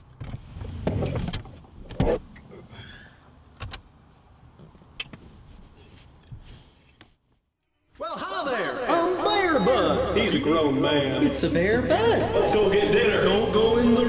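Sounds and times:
rustling and shuffling: 4.0 - 7.6.

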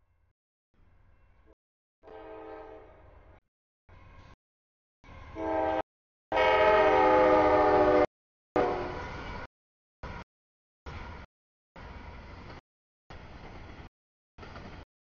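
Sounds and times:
locomotive air horn blasts: 2.0 - 2.9, 5.4 - 9.0.

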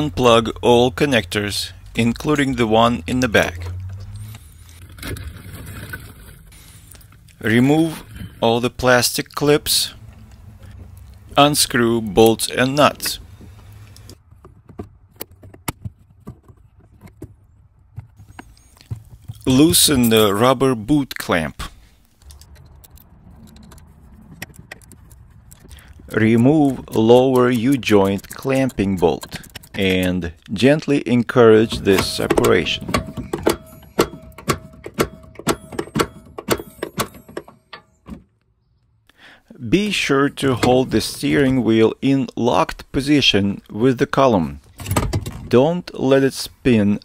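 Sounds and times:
plastic connectors clicking: 22.2 - 31.0.

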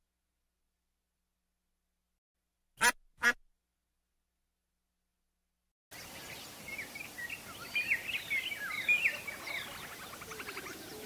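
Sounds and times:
harsh quack-like animal call: 2.8 - 3.4.

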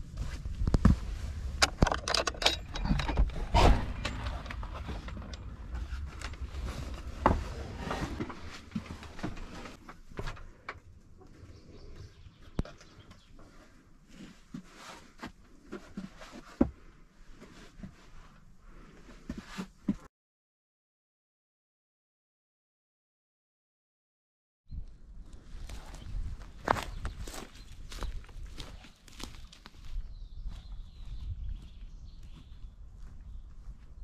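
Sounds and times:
clicks and creaks: 1.6 - 13.6
rustling: 2.7 - 10.6.

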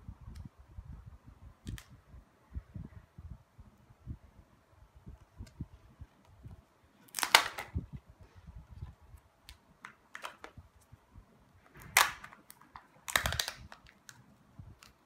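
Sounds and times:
plastic wrapping crinkling: 7.0 - 7.8, 11.7 - 15.0
plastic capsule crackling open: 7.0 - 8.0, 9.4 - 10.9, 11.7 - 15.0.

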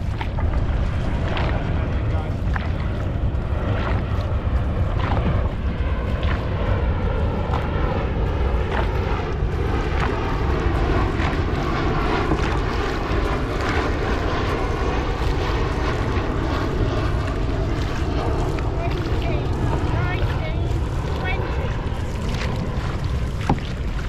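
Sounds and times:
paddles splashing into water: 0.0 - 24.0
wind rumbling on microphone: 0.0 - 24.0.

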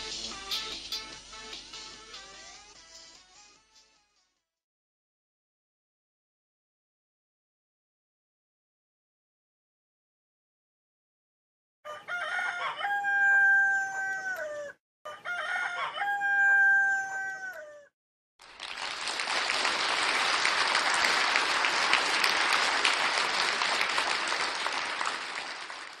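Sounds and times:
rooster crowing: 11.9 - 17.9
crowd applauding: 18.4 - 26.0.

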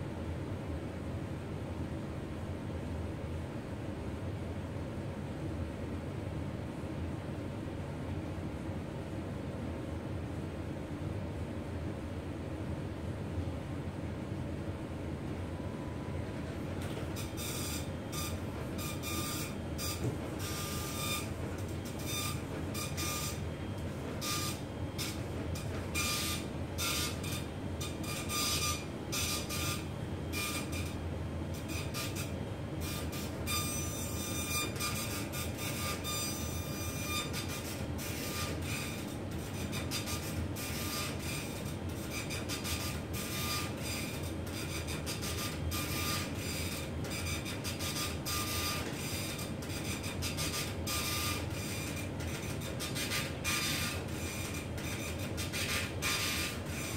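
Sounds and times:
baby swing motor drone: 15.7 - 56.9.

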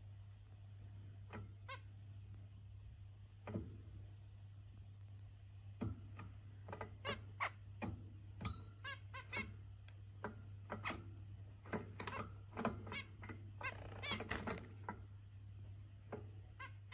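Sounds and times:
finches giving nasal calls: 12.8 - 14.6.

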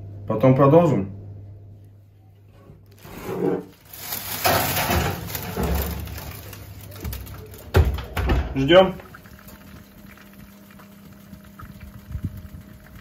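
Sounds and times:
glass scraping on metal rack: 3.0 - 3.8.

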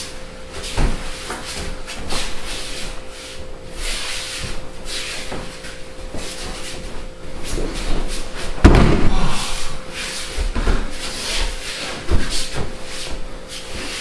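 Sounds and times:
bare feet scuffing on mat: 0.5 - 14.0
dull thump: 8.5 - 9.4.

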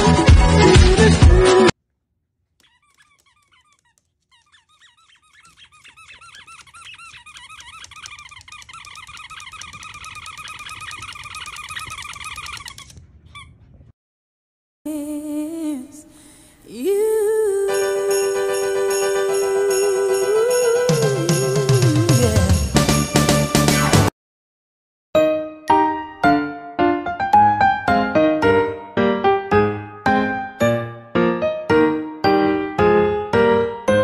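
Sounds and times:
rapid high-pitched squeaks: 2.6 - 13.6.

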